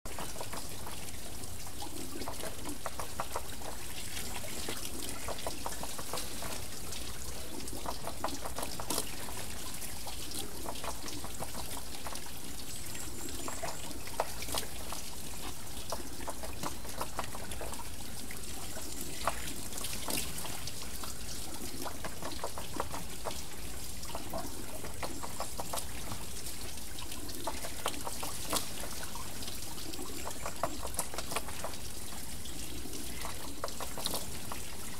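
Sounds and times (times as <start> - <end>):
water pouring and trickling: 0.1 - 34.9
water splashes and drips: 0.1 - 34.9
water wheel turning: 18.7 - 34.9.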